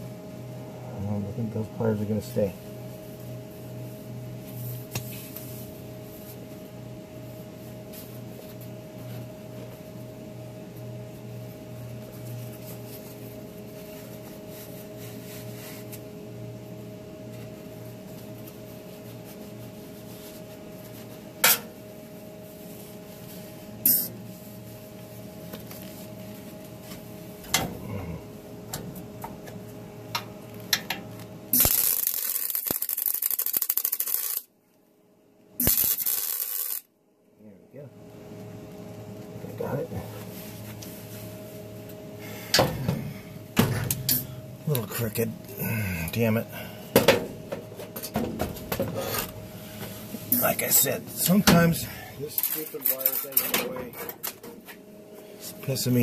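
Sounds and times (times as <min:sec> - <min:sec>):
steady hum: 0:00.0 - 0:56.0
welding arc crackling: 0:31.5 - 0:34.5, 0:35.6 - 0:36.9.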